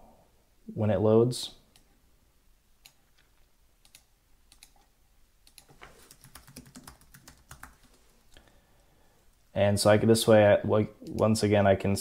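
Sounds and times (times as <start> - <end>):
faint keyboard typing: 2.8 - 8.4.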